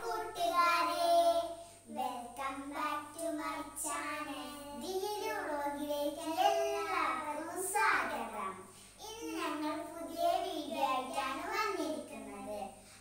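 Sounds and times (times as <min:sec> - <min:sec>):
girls singing: 0:00.0 - 0:01.4.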